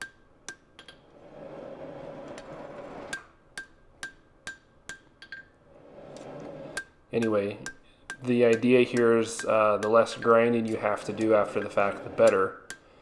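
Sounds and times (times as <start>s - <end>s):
hammer striking metal on anvil: 3.1s - 5.5s, 6.8s - 13.0s.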